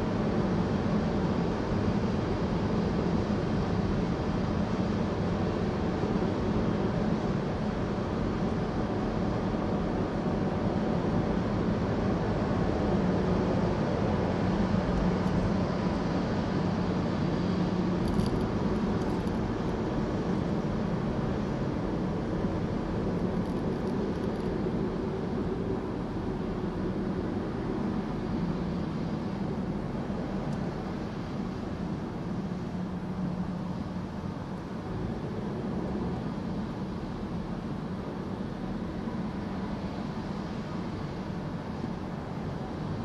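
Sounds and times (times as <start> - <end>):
car road and engine noise: 0.0 - 43.0.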